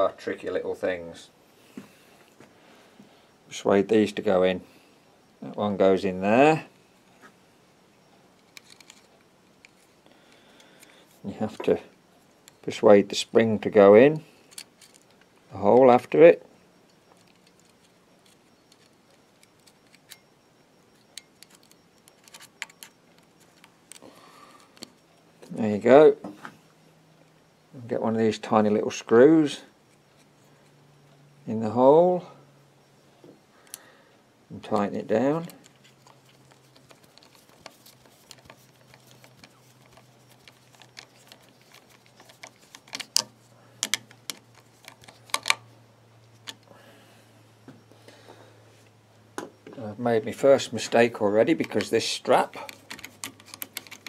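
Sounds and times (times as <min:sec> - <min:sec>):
screwdriver clicks and scrapes: 0:08.4 - 0:09.9, 0:17.1 - 0:20.2, 0:20.9 - 0:24.0, 0:35.6 - 0:45.7, 0:52.6 - 0:54.0.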